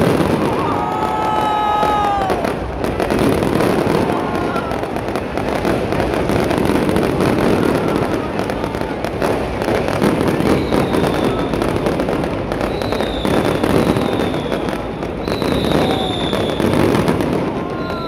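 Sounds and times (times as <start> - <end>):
fireworks crackling and popping: 0.0 - 18.0
fireworks whistles: 0.0 - 18.0.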